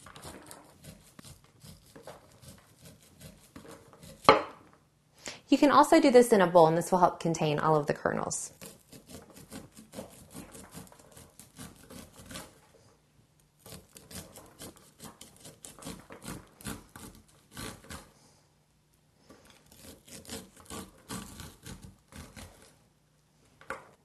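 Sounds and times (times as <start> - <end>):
knife cutting corn kernels: 0.0 - 4.5, 8.5 - 12.7, 13.6 - 18.2, 19.2 - 22.8.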